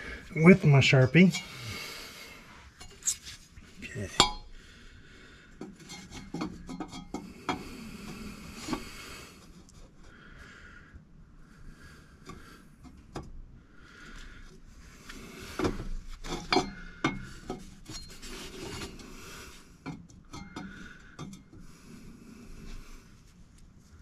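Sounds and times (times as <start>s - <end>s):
metal pipes rubbing and scraping: 2.4s - 4.5s, 5.7s - 8.9s, 15.5s - 21.9s.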